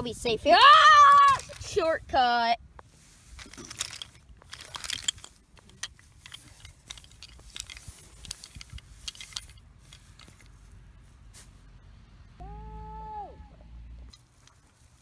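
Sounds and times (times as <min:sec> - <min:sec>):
small toys clicking and rattling: 0:03.4 - 0:10.6.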